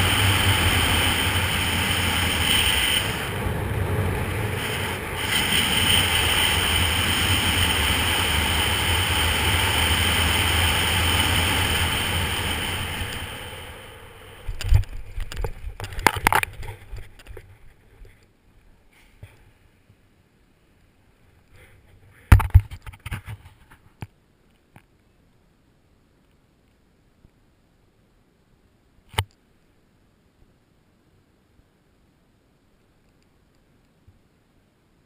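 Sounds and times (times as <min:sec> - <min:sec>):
wind rushing over camera: 0:00.0 - 0:18.2.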